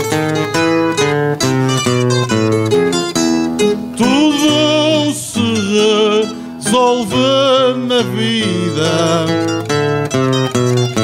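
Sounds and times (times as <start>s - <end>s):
plucked strings accompaniment: 0.0s - 11.0s
man singing held notes: 4.0s - 9.4s.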